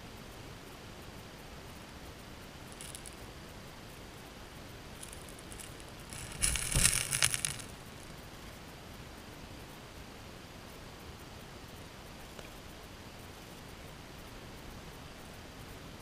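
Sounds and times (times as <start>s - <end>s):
underwater gravel clattering: 2.8s - 3.2s, 5.0s - 7.7s
current hissing: 4.9s - 8.1s.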